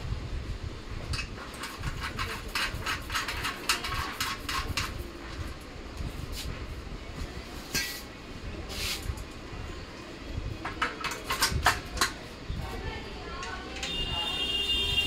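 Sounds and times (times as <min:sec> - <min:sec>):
spanner clicking on metal: 0:10.6 - 0:12.2.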